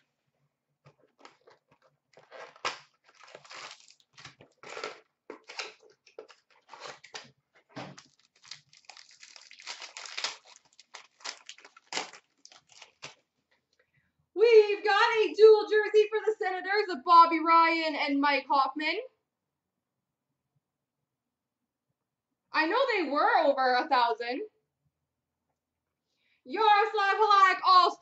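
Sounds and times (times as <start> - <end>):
plastic wrappers tearing and crinkling: 1.2 - 13.3.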